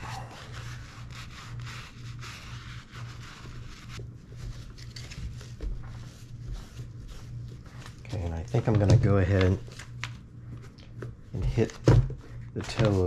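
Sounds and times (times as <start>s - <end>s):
brush scrubbing leather: 0.0s - 4.0s.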